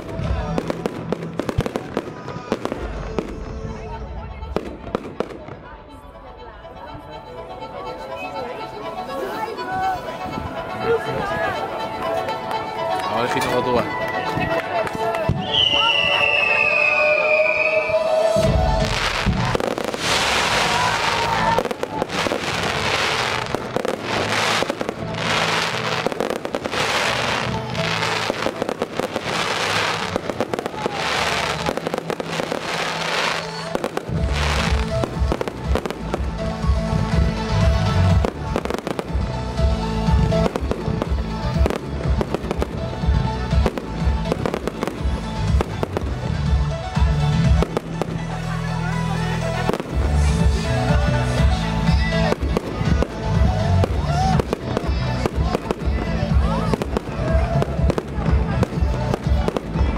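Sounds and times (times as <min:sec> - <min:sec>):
firework crackling: 0:00.0 - 0:07.1, 0:08.5 - 0:59.9
music: 0:00.0 - 0:59.9
fireworks fountains hissing: 0:13.0 - 0:59.9.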